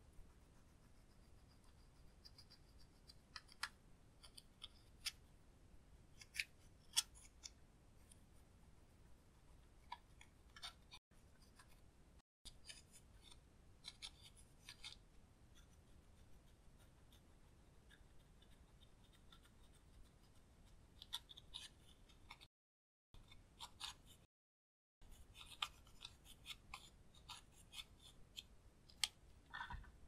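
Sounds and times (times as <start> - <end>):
metal tool scratching eyeshadow: 0.2 - 5.2, 9.4 - 11.8, 12.5 - 22.5, 23.2 - 24.3, 25.0 - 29.1.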